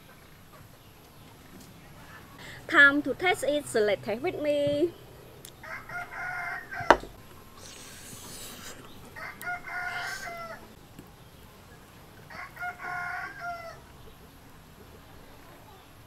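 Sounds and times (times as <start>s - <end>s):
rooster crowing: 5.6s - 7.1s, 9.1s - 10.8s, 12.3s - 13.9s
sharp knock: 6.8s - 7.2s.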